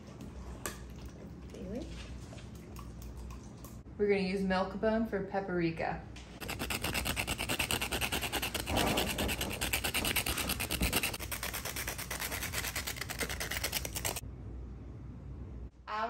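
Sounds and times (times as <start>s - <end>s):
biscuit grated on metal grater: 6.4s - 14.2s.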